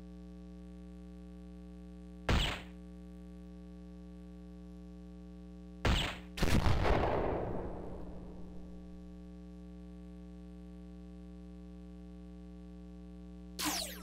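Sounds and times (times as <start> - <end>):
electronic dartboard hit sound: 2.3 - 2.8, 5.8 - 6.3, 13.6 - 14.0.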